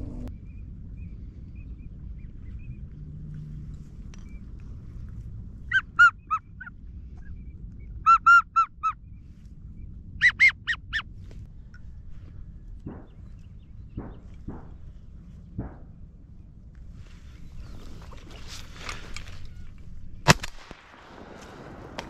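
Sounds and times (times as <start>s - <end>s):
steady low rumble: 0.0s - 22.0s
geese honking: 5.7s - 6.7s, 8.1s - 9.0s, 10.2s - 11.1s.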